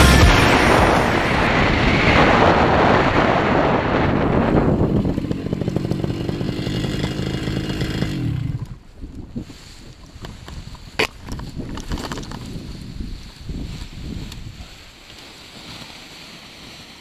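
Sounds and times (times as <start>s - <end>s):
wind on microphone: 0.0s - 15.0s
paramotor engine and propeller: 4.4s - 8.8s.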